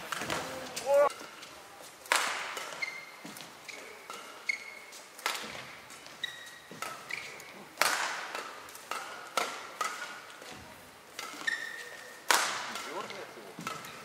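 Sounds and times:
rackets hitting shuttlecock: 0:00.0 - 0:14.0
shoes squeaking on court: 0:02.6 - 0:07.7, 0:11.2 - 0:14.0.

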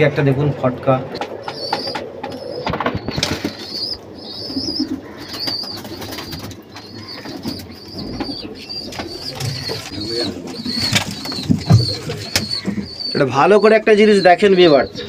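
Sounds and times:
pigeon cooing: 0:01.2 - 0:15.0
pigeon wing flaps and scuffling: 0:01.5 - 0:03.7, 0:08.2 - 0:12.9.

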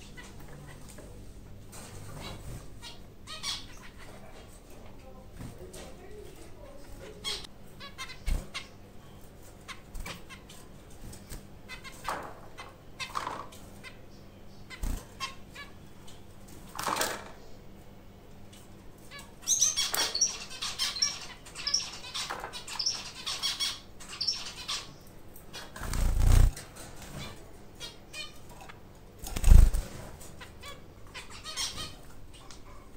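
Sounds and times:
high chirping calls: 0:19.1 - 0:26.5
finches fluttering and rustling: 0:25.5 - 0:30.5
wing flaps: 0:25.8 - 0:26.6, 0:29.2 - 0:30.0.

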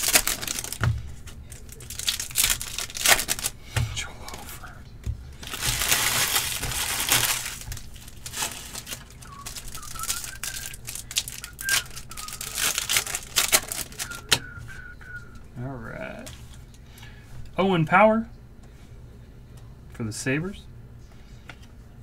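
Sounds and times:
foil pack crinkling: 0:00.0 - 0:03.6, 0:05.4 - 0:14.4.

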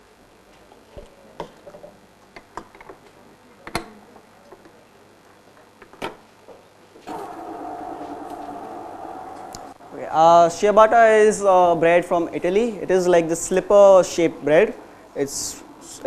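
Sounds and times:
steady hum: 0:07.0 - 0:16.0.

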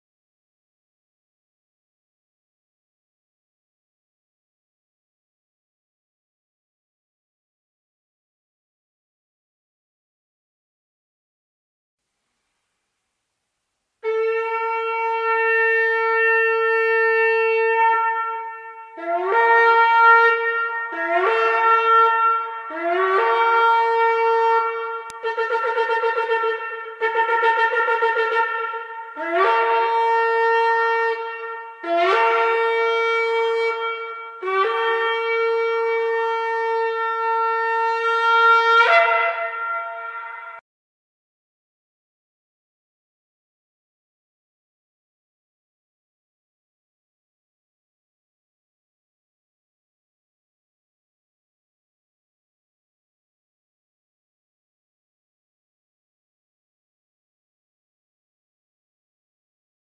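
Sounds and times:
shofar blasts: 0:14.0 - 0:40.6.

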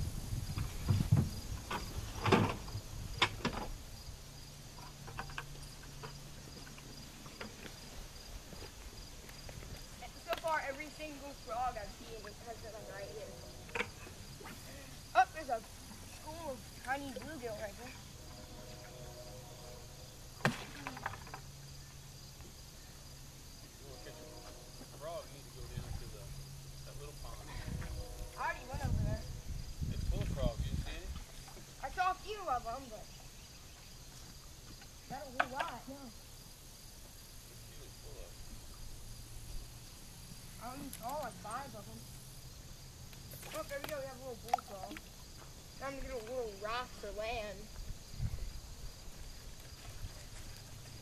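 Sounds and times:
low steady hum: 0:00.0 - 0:34.4
insects chirping: 0:00.0 - 0:51.0
knocks and rustles: 0:00.4 - 0:03.8.

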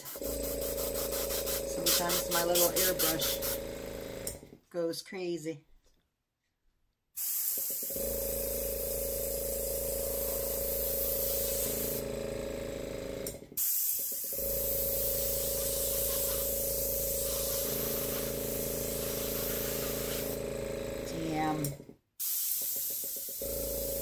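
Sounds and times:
airbrush air hiss: 0:00.0 - 0:03.6, 0:07.2 - 0:07.9, 0:09.8 - 0:12.0, 0:13.6 - 0:20.4, 0:22.2 - 0:24.0
compressor motor hum: 0:00.0 - 0:04.6, 0:07.9 - 0:13.6, 0:14.2 - 0:22.0, 0:23.2 - 0:24.0.

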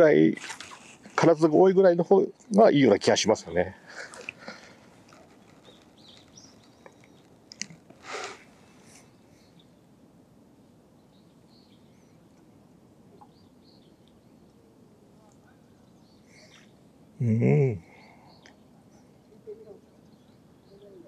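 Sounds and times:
faint bird chirps: 0:10.6 - 0:21.0.

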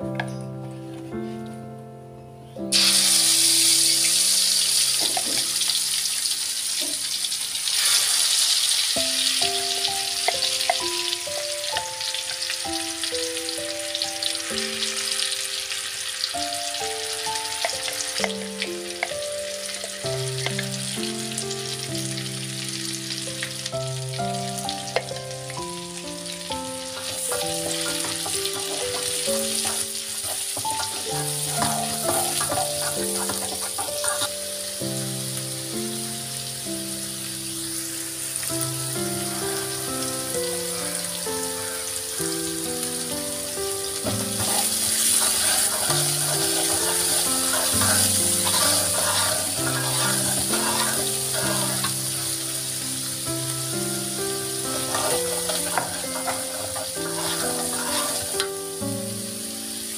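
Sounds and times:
background music melody: 0:00.0 - 0:06.3, 0:08.9 - 0:59.9
spice paste sizzling in oil: 0:02.7 - 0:59.9
metal spatula scraping wok: 0:27.0 - 0:34.4, 0:44.1 - 0:52.8, 0:54.6 - 0:58.6.

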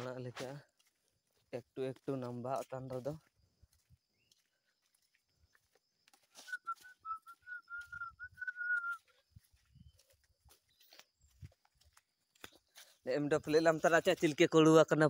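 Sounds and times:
footsteps on forest floor: 0:00.0 - 0:15.0
person whistling a tune: 0:06.4 - 0:09.2.

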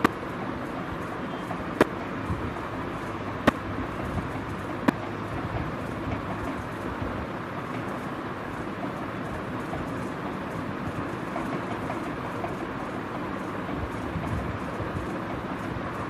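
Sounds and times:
steady background noise: 0:00.0 - 0:16.0.

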